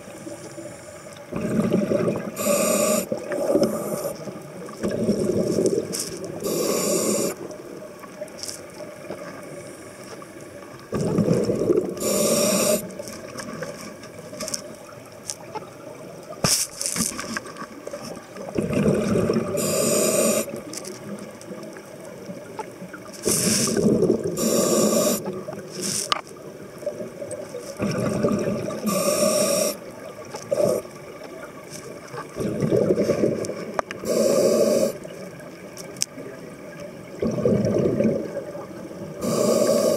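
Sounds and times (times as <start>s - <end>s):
exhale bubbling underwater: 1.2s - 8.1s, 10.8s - 15.0s, 17.8s - 25.7s, 26.5s - 35.6s, 37.0s - 39.9s
regulator inhale hiss: 2.3s - 4.3s, 6.0s - 7.4s, 12.0s - 13.0s, 19.5s - 20.6s, 23.2s - 26.0s, 28.8s - 29.8s, 34.0s - 35.1s, 39.2s - 39.9s.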